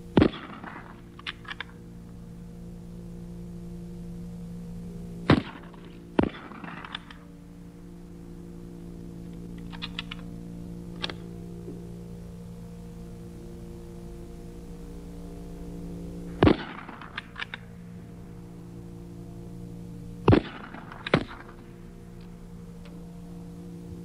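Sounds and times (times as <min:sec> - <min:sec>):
steady hum: 0:00.0 - 0:24.0
rifle shots: 0:00.2 - 0:00.9, 0:05.3 - 0:07.1, 0:16.4 - 0:17.6, 0:20.3 - 0:21.5
sharp metallic clicks: 0:00.2 - 0:01.8, 0:05.3 - 0:07.3, 0:09.3 - 0:10.3, 0:10.9 - 0:11.3, 0:16.3 - 0:17.7, 0:20.3 - 0:21.6.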